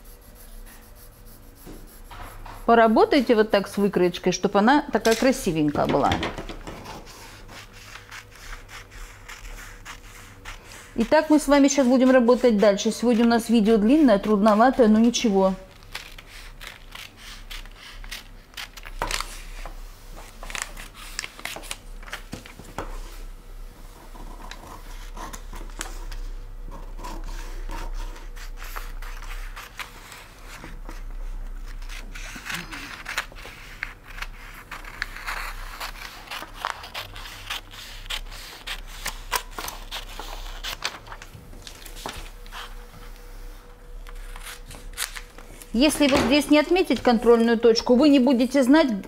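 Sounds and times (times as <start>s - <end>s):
paper sheets rustling: 6.6s - 23.2s, 28.2s - 43.3s
scissors cutting paper: 6.8s - 19.6s, 26.9s - 42.7s, 44.0s - 45.3s.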